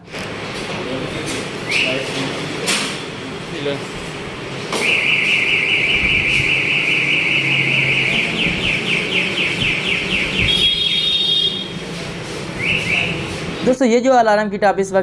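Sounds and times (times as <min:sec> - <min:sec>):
motorcycle alarm siren: 0:04.8 - 0:11.8, 0:12.6 - 0:13.3.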